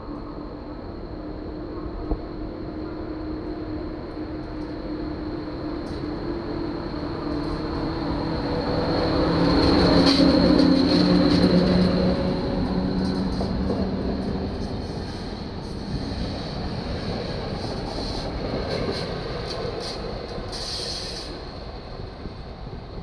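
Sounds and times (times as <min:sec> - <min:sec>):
electric locomotive motors humming: 0:00.0 - 0:23.0.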